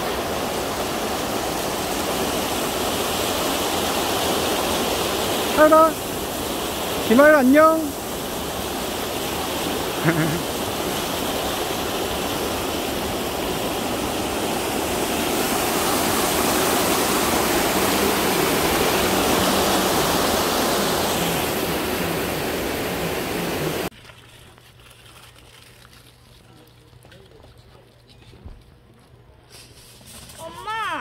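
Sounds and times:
rushing river water: 0.0 - 23.9.

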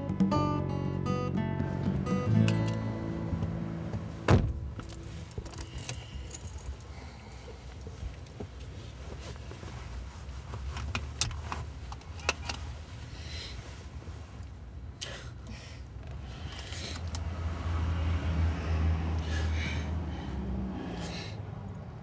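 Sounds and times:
low steady rumble: 0.6 - 17.3
clicks and rattles inside car: 1.6 - 13.0
sharp thump: 4.2 - 4.8.

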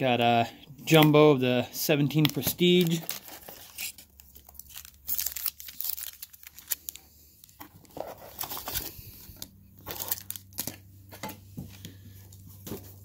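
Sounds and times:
foil packs crinkling: 1.9 - 10.8.

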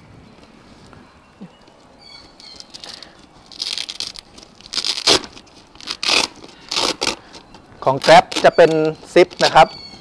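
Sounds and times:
foil insulation crinkling: 2.4 - 9.7.

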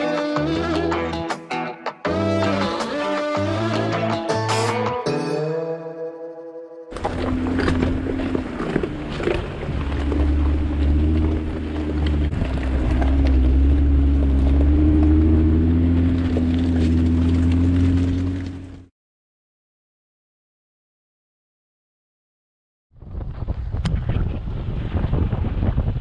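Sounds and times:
guitar music: 0.0 - 8.0
tyres crunching on rocky dirt: 6.9 - 18.9
vehicle engine droning: 6.9 - 18.9.

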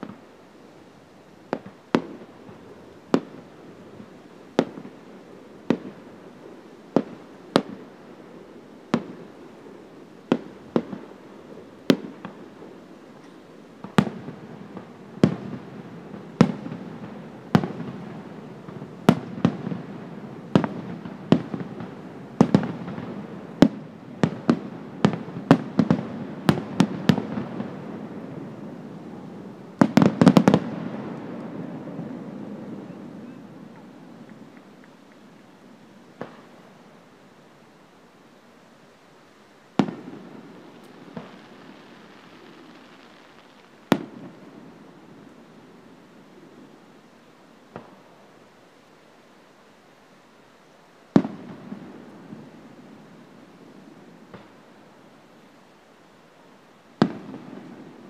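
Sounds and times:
firework shells bursting: 39.8 - 44.4.

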